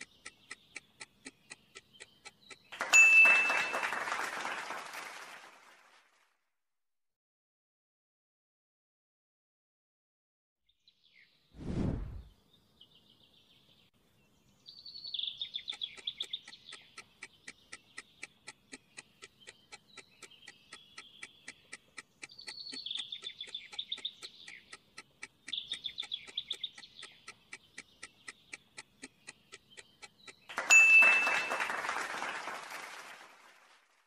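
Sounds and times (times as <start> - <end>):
bird chirping and trilling: 0.0 - 2.8, 14.4 - 31.1
rapid ticking: 0.0 - 2.8, 15.4 - 30.6.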